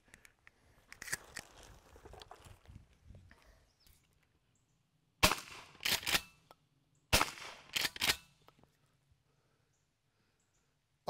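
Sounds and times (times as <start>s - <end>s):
shotgun shots: 5.2s - 6.3s, 7.1s - 8.2s.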